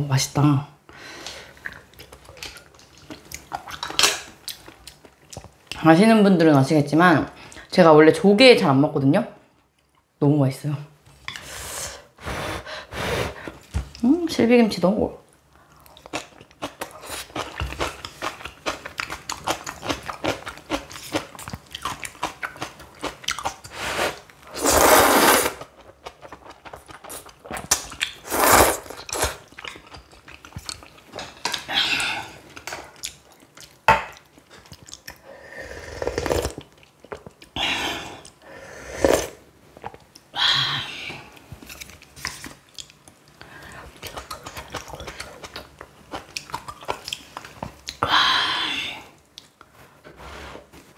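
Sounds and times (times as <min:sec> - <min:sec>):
noodle slurping: 0:23.8 - 0:25.7, 0:28.2 - 0:29.4.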